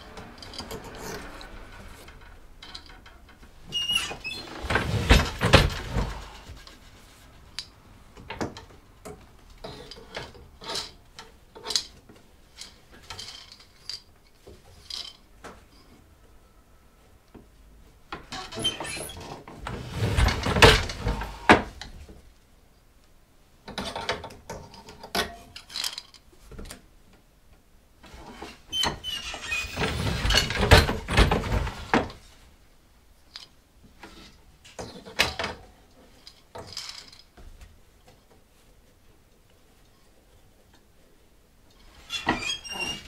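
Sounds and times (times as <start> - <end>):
wooden handloom knocking and clacking: 28.8 - 32.2.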